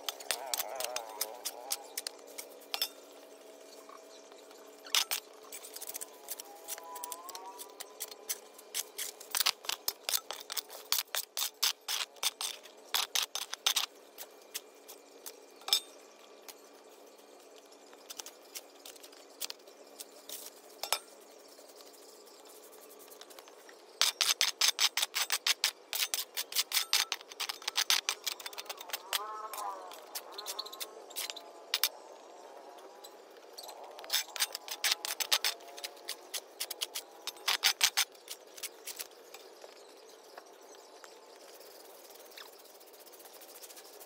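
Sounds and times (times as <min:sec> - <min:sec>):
shovel scraping on brick: 0:00.0 - 0:03.0.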